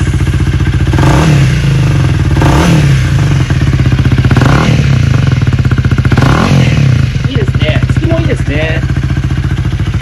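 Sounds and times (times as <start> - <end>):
motorcycle engine revving: 0.0 - 10.0.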